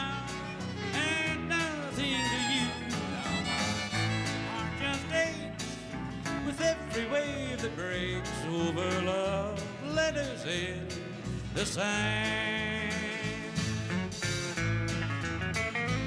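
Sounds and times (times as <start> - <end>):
bluegrass country music: 0.0 - 16.0
strummed acoustic guitar: 0.0 - 16.0.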